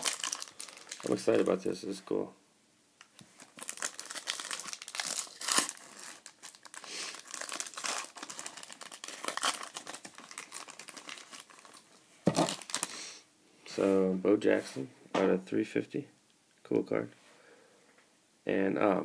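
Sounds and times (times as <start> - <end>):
foil wrapper crinkling and tearing: 0.0 - 1.6, 3.4 - 12.9.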